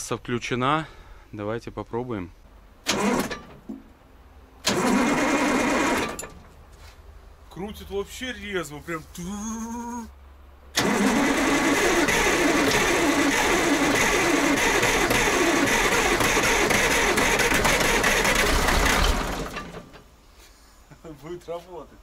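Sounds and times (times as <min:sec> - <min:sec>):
starter cranking diesel engine: 0:02.8 - 0:03.8, 0:04.6 - 0:06.4, 0:10.7 - 0:20.1.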